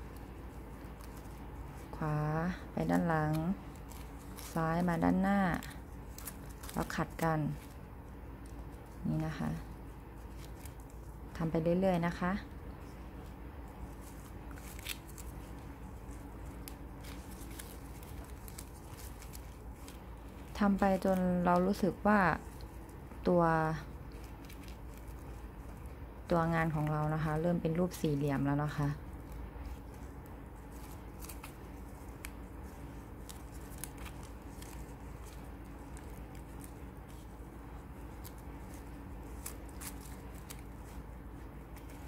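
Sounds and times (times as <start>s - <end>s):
low steady hum: 0.0s - 42.0s
satin ribbon rustling: 0.0s - 42.0s
light crinkles and ticks: 12.1s - 42.0s.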